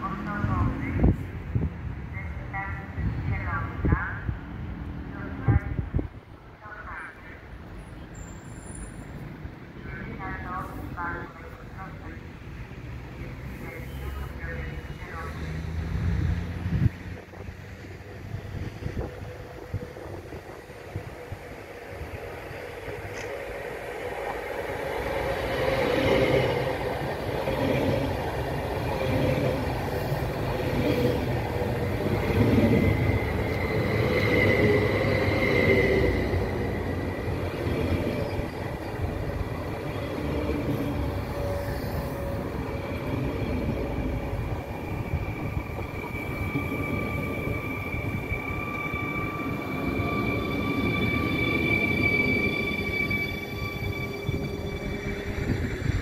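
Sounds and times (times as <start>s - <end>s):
train wheels rumbling on rails: 12.8s - 56.0s
high whine or squeal: 44.9s - 56.0s.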